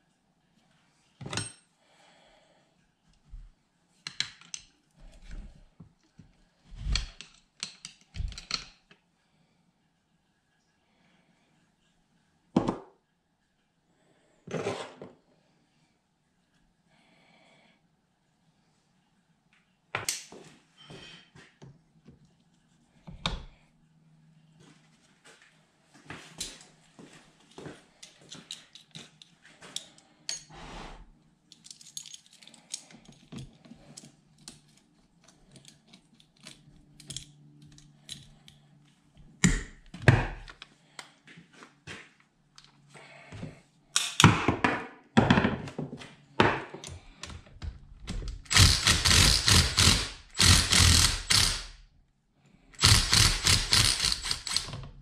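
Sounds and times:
metal tools clicking and knocking: 0:04.0 - 0:04.8, 0:06.8 - 0:09.0, 0:28.0 - 0:30.5, 0:31.5 - 0:38.6
impact driver hammering: 0:48.5 - 0:51.7, 0:52.8 - 0:54.8.

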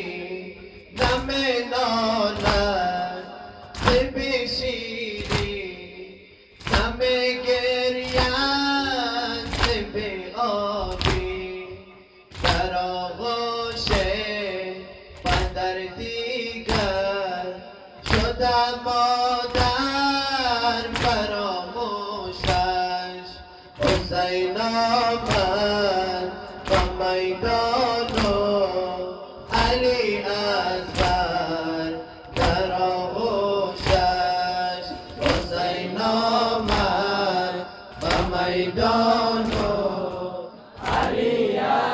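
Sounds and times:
man chanting through loudspeakers: 0:00.0 - 0:41.9.

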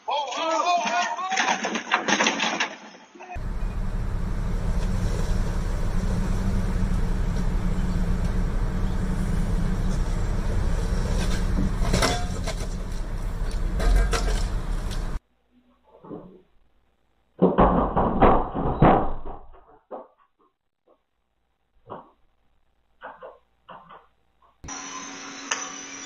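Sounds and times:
vehicles idling rumble: 0:03.4 - 0:15.2.

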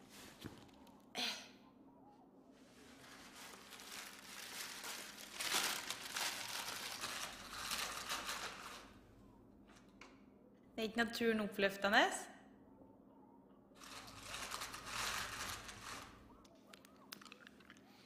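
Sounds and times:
paper bag crinkling: 0:02.9 - 0:09.0, 0:13.8 - 0:16.3.

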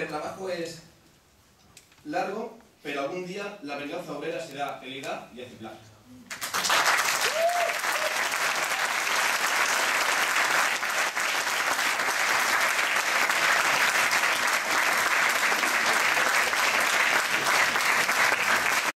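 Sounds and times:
audience applauding: 0:06.3 - 0:19.0.

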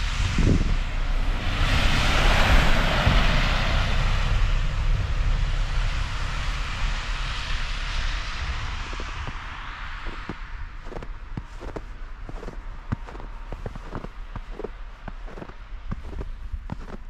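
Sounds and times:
vehicle passing with rushing hiss: 0:00.0 - 0:16.4
low rumble: 0:00.0 - 0:17.0.

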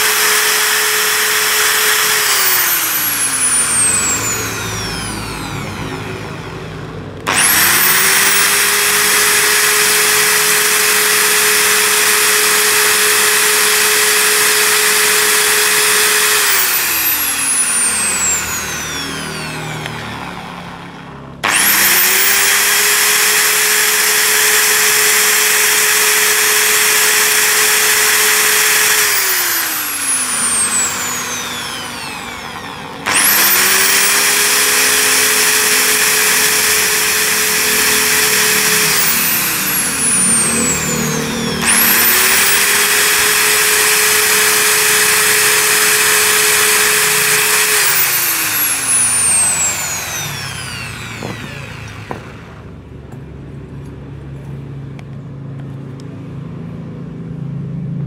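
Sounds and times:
electric grinder whining: 0:00.0 - 0:53.2.

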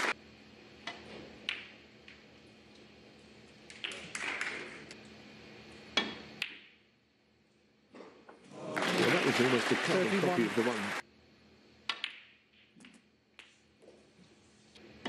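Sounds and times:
snooker balls clicking: 0:00.9 - 0:02.2, 0:03.6 - 0:05.0, 0:05.9 - 0:06.8, 0:11.8 - 0:13.7.

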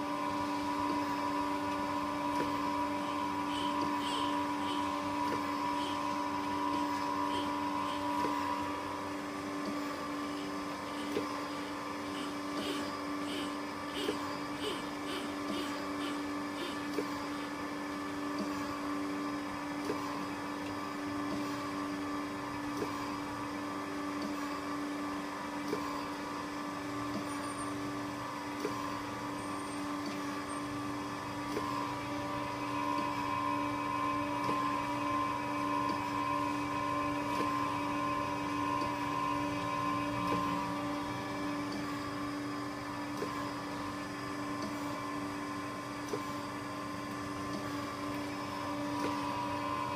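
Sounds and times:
surface grinder humming and whining: 0:00.0 - 0:18.2, 0:28.8 - 0:42.8, 0:47.4 - 0:49.9.

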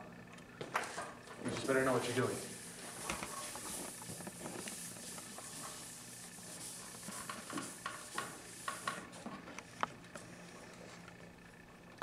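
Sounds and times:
eraser scrubbing chalkboard: 0:01.7 - 0:09.2.

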